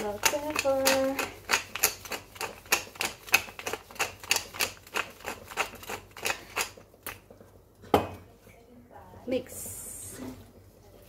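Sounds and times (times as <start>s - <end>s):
pepper mill grinding: 0.0s - 7.3s.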